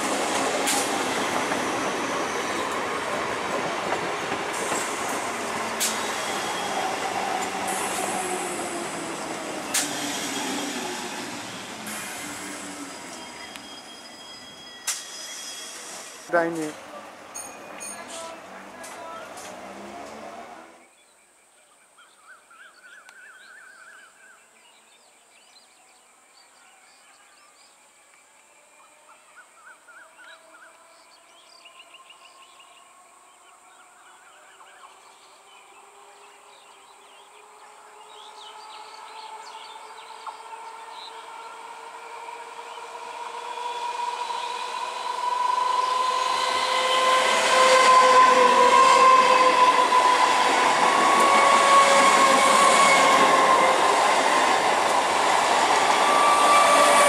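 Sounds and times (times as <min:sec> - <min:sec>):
train carriages passing: 0:00.0 - 0:20.8, 0:36.7 - 0:57.0.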